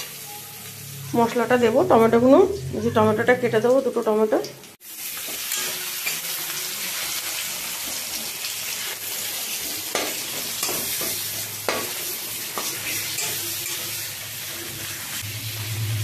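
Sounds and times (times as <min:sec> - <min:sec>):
vegetables sizzling in oil: 0:00.0 - 0:16.0
metal spatula scraping a pan: 0:05.0 - 0:15.2.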